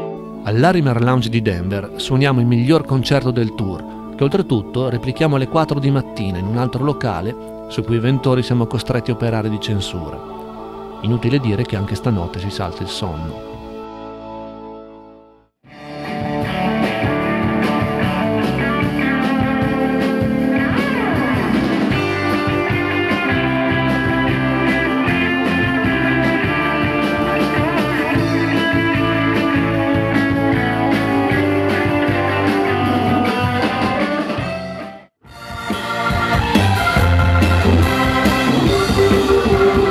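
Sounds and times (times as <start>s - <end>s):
bass: 0.0s - 39.9s
organ chords: 0.0s - 39.9s
electric guitar: 15.7s - 39.9s
drums: 15.8s - 39.9s.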